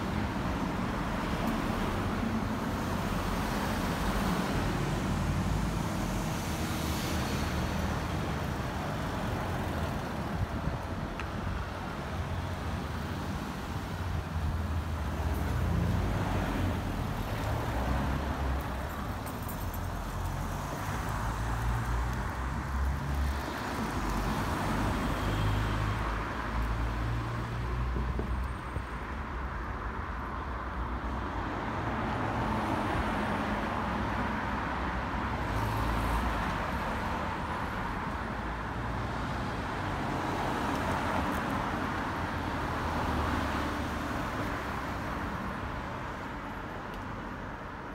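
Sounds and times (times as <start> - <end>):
continuous low traffic rumble: 0.0 - 47.9
cars driving past: 11.3 - 28.9.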